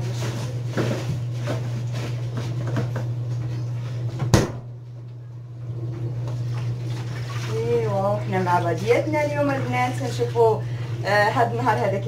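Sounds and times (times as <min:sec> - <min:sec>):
steady low hum: 0:00.0 - 0:12.0
sharp knock: 0:04.3 - 0:04.7.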